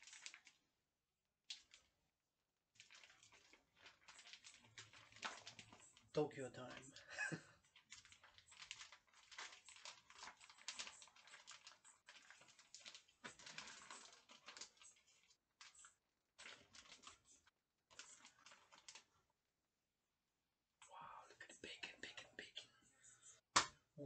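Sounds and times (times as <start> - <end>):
plastic packaging crinkling: 0.0 - 0.6, 2.8 - 19.2.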